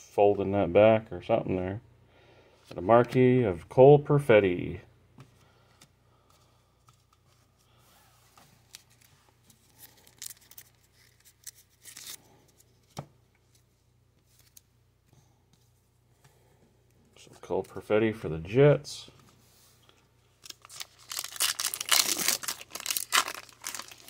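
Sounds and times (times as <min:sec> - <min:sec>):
trading cards rustling and clicking: 0:08.4 - 0:14.7, 0:20.4 - 0:24.0.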